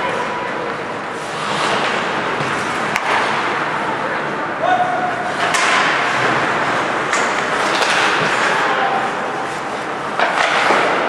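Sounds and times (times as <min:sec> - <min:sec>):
skates scraping ice: 0:00.0 - 0:04.3, 0:05.2 - 0:11.0
crowd noise: 0:00.0 - 0:11.0
hockey sticks clacking on puck: 0:00.6 - 0:03.6, 0:05.3 - 0:11.0.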